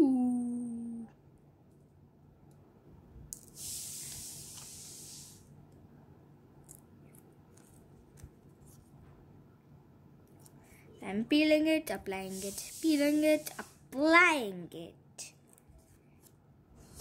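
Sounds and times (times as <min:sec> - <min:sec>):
tape liner peeling hiss: 0:03.4 - 0:05.5, 0:12.3 - 0:13.9.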